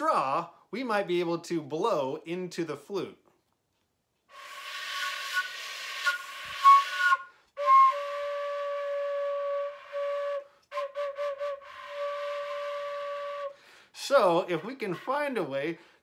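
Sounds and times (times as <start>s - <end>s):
breathy flute notes: 4.3s - 14.0s
short tongued flute notes: 4.4s - 13.6s.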